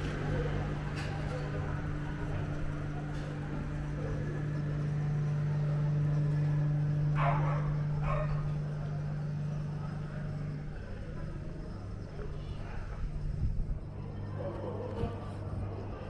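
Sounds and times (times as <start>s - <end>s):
steady low hum: 0.0s - 16.0s
dog barking: 7.2s - 8.6s.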